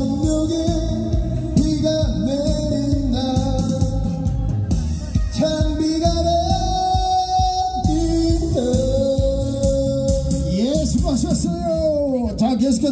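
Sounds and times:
man singing into a microphone: 0:00.0 - 0:12.1
recorded backing track: 0:00.0 - 0:12.9.

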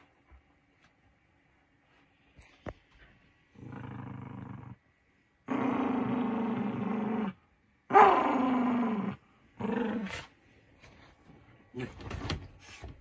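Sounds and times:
small dog growling: 0:03.6 - 0:04.8, 0:05.4 - 0:10.3.

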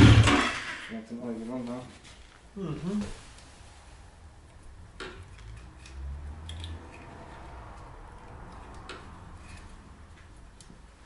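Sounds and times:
hand tools clicking and tapping: 0:05.0 - 0:10.8.

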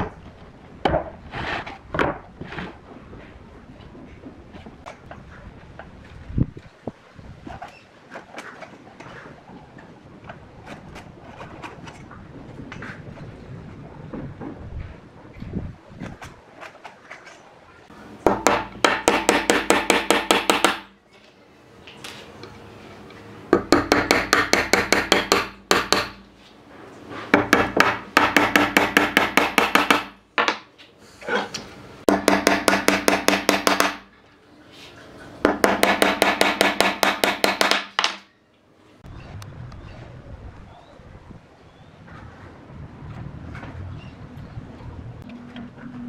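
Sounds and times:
hammer driving nails into wood: 0:18.3 - 0:20.9, 0:23.6 - 0:26.2, 0:27.3 - 0:30.7, 0:32.1 - 0:34.1, 0:35.4 - 0:38.3.

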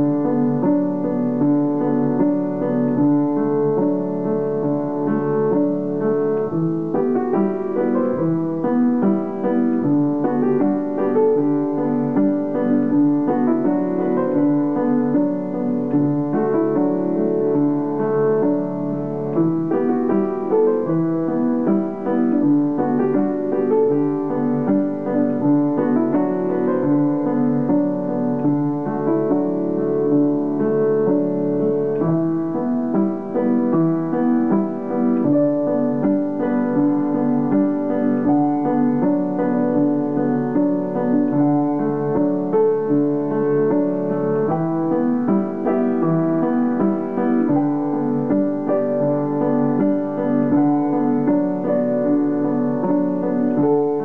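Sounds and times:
solo piano music: 0:00.0 - 0:54.0.

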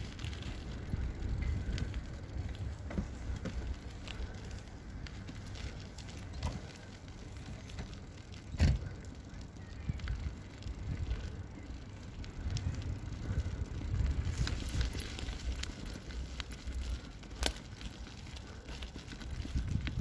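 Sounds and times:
wheels rolling over gravel: 0:00.0 - 0:20.0.

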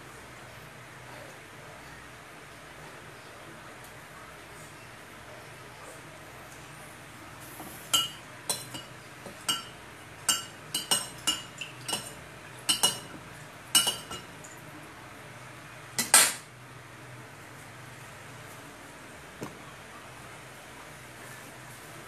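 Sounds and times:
metal utensils clinking: 0:07.9 - 0:14.6.

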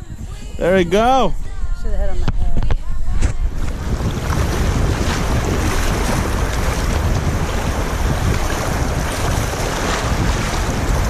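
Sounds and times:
wind buffeting microphone: 0:00.0 - 0:11.0
water splashing against kayak: 0:02.2 - 0:11.0.

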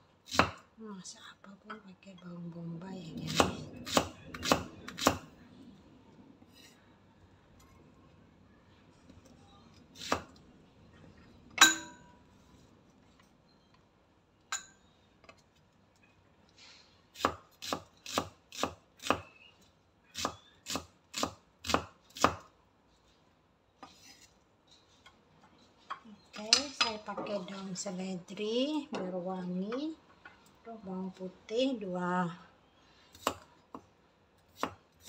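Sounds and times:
knife chopping onion on wood: 0:00.3 - 0:00.6, 0:03.3 - 0:05.2, 0:10.0 - 0:10.3, 0:17.2 - 0:19.3, 0:20.1 - 0:22.5, 0:33.1 - 0:33.5, 0:34.5 - 0:35.0.

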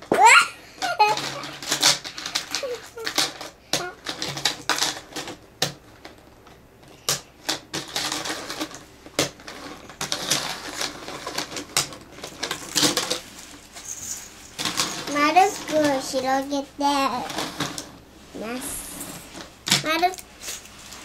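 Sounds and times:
plastic track pieces clicking: 0:00.8 - 0:05.8.

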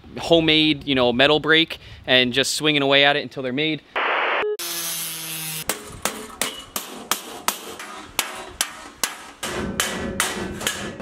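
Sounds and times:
hammer blows on sheet steel: 0:05.6 - 0:11.0.

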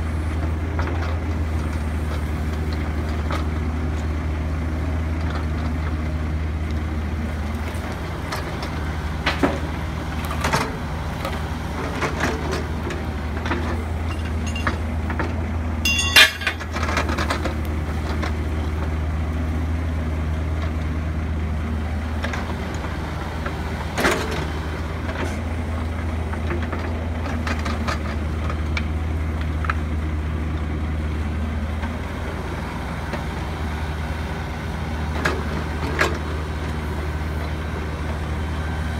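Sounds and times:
excavator diesel engine running: 0:00.0 - 0:38.9
steel bucket clanking and scraping: 0:14.1 - 0:14.8, 0:15.9 - 0:17.1
sharp metallic clank with ring: 0:15.8 - 0:16.6.

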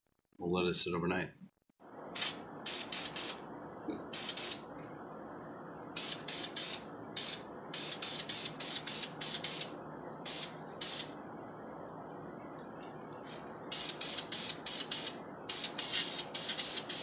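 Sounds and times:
faint high whine: 0:01.8 - 0:17.0
spray paint can hissing: 0:02.1 - 0:03.4, 0:04.1 - 0:04.7, 0:06.0 - 0:11.2, 0:13.7 - 0:17.0.

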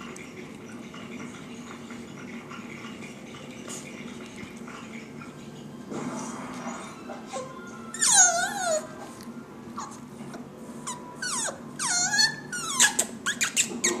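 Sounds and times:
puppy whining: 0:06.7 - 0:14.0.

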